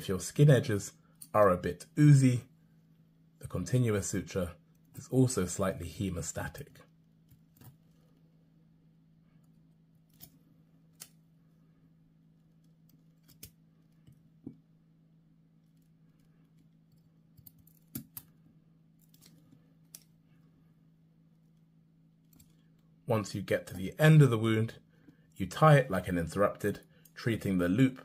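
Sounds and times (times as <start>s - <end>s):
low steady hum: 0.0s - 28.0s.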